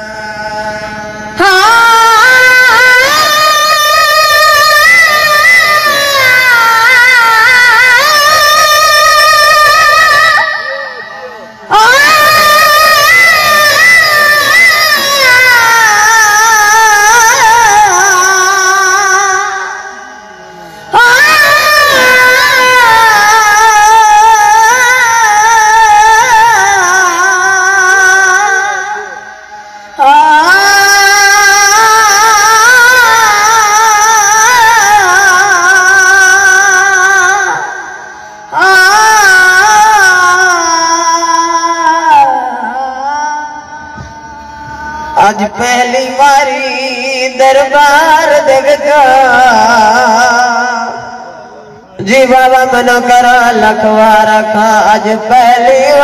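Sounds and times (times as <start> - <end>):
boys singing in chorus: 38.6 - 50.7.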